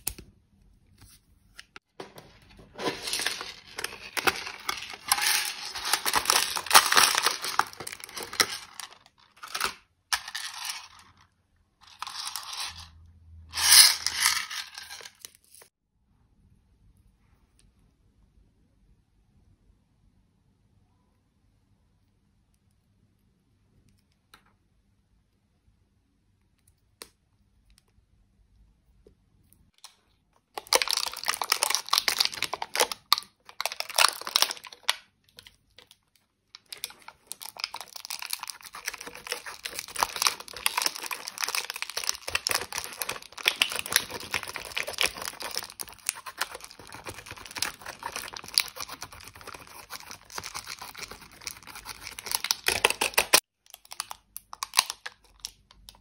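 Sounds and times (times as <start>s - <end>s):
eyeshadow scratching and crackling: 2.3s - 11.2s, 36.6s - 53.4s.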